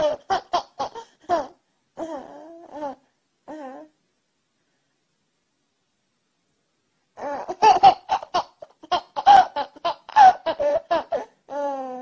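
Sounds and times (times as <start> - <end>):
baby giggling: 0.0 - 2.3, 7.2 - 11.9.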